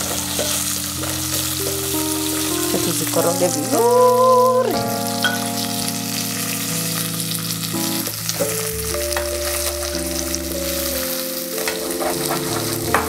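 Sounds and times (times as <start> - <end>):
food sizzling in oil: 0.0 - 13.0
wooden spoon scraping a pot: 11.6 - 13.0.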